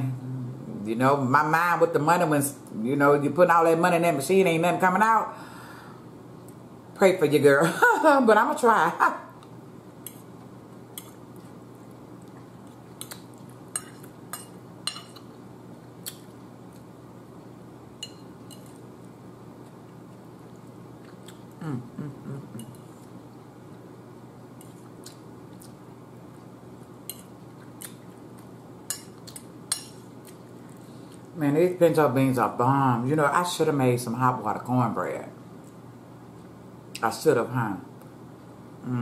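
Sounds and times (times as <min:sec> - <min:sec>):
metal fork clinking on a plate: 0:13.8 - 0:15.2
person humming low: 0:21.6 - 0:22.8.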